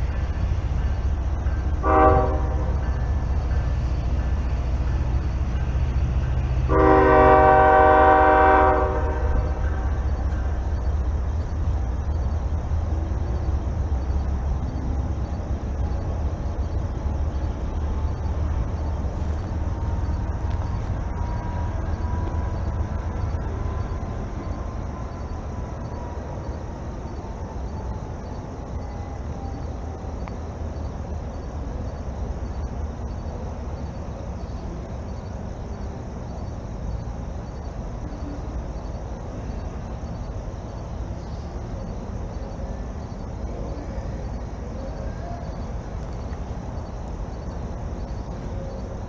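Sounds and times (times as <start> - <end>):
steady low rumble: 8.9 - 26.0.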